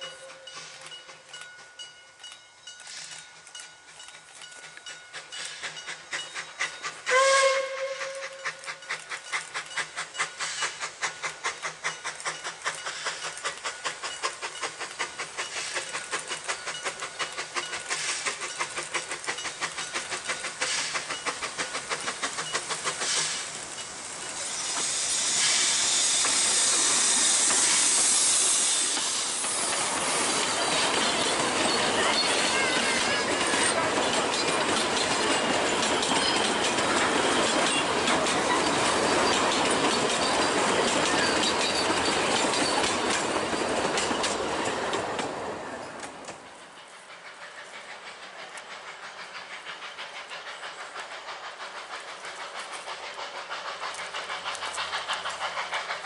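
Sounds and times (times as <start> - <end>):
loud hiss of steam: 0.0 - 1.2, 2.8 - 56.0
carriages rolling on rails: 0.0 - 56.0
steam locomotive exhaust beats: 0.0 - 56.0
steam whistle blast: 7.1 - 8.6.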